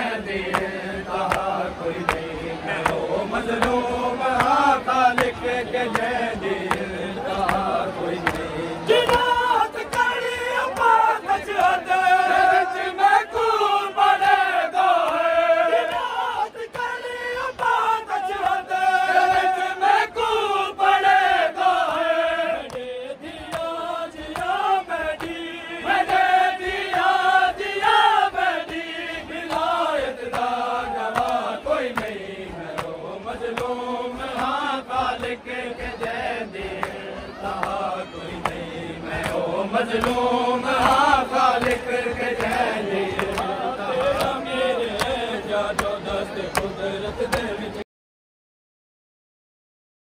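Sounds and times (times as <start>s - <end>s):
men chanting a lament: 0.0s - 47.8s
chest-beating slaps: 30.3s - 34.6s.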